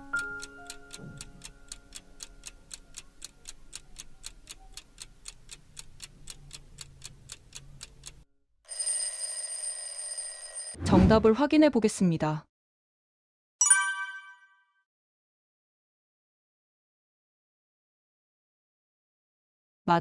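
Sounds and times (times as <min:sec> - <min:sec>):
piano background music: 0:00.0 - 0:02.7
clock ticking: 0:00.1 - 0:08.2.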